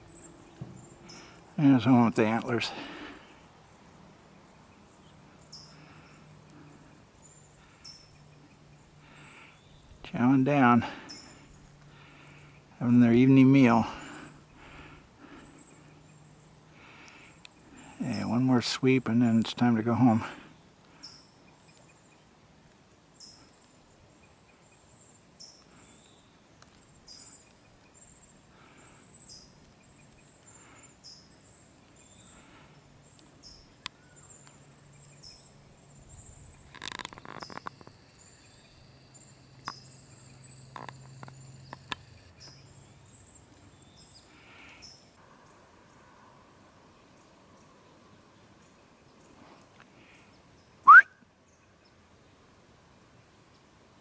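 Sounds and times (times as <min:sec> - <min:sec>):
short high chirping calls: 0:50.8 - 0:51.1.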